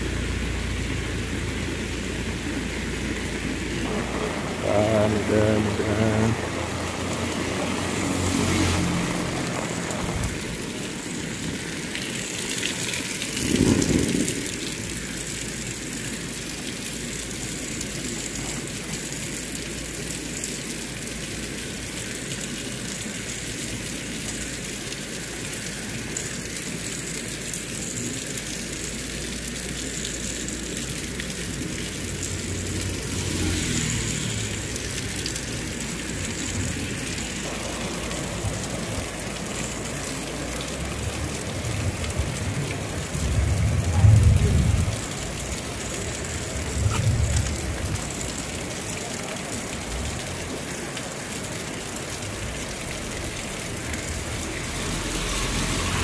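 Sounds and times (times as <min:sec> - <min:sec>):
vehicle engine: 0:00.0 - 0:15.2, 0:29.8 - 0:56.0
heavy rain on road and leaves: 0:00.0 - 0:56.0.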